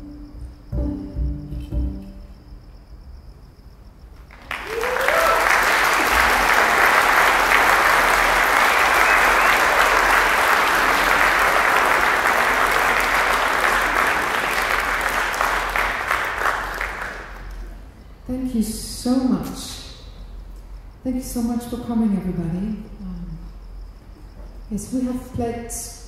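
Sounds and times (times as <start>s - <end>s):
audience applauding: 4.2s - 17.9s.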